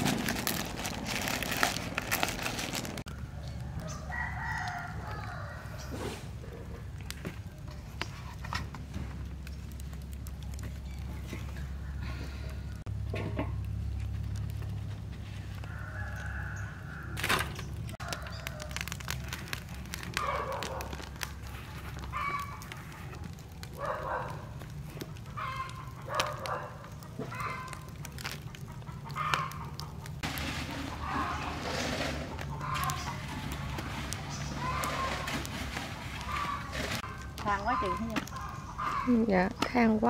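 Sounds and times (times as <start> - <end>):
chickens clucking: 25.0 - 40.0.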